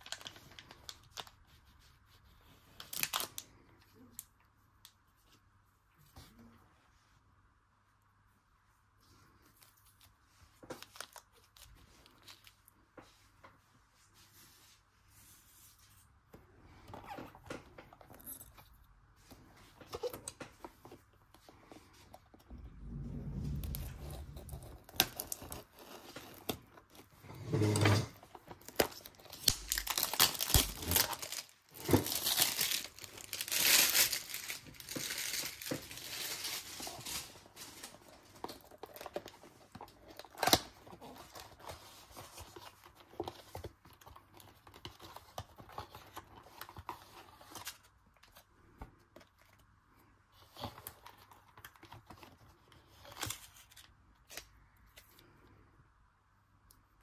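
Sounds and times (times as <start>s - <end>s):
packaging tearing and crinkling: 23.7s - 43.6s.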